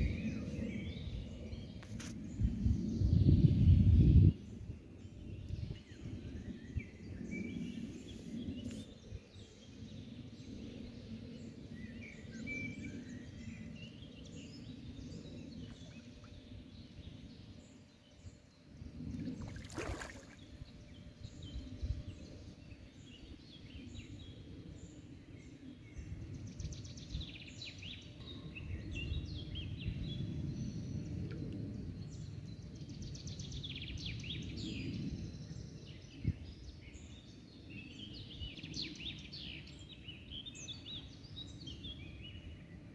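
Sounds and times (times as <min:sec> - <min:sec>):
fish splashing at surface: 0:19.4 - 0:20.4.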